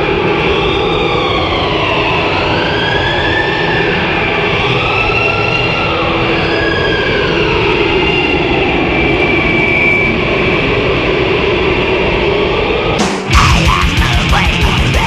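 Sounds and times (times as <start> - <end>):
metal band playing: 13.0 - 15.0.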